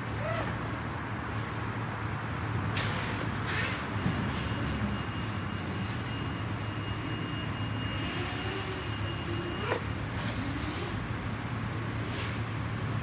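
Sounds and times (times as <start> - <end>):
outdoor background noise: 0.0 - 13.0.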